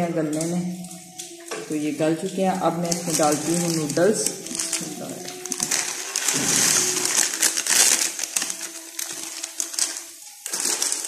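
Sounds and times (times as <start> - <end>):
plastic packet crinkling: 0.0 - 11.0
dry noodles pouring into a wok: 4.1 - 11.0.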